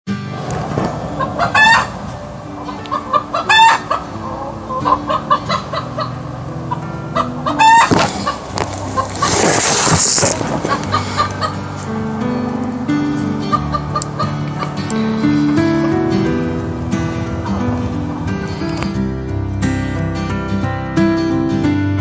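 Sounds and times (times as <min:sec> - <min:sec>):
rooster clucking: 0:01.0 - 0:11.9, 0:13.2 - 0:16.4
loud hen-like calls: 0:01.2 - 0:02.0, 0:02.7 - 0:06.1, 0:07.2 - 0:11.6
rush of noise: 0:04.1 - 0:13.6.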